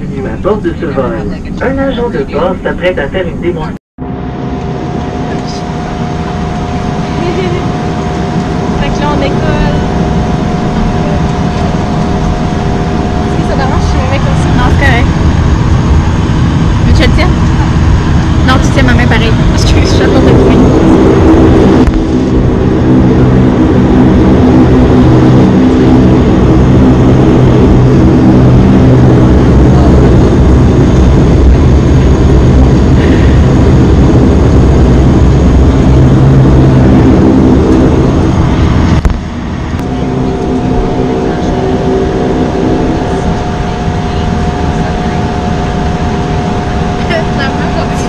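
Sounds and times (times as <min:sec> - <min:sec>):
quiet cabin drone: 0:00.0 - 0:48.0
turboprop engine drone: 0:00.0 - 0:48.0.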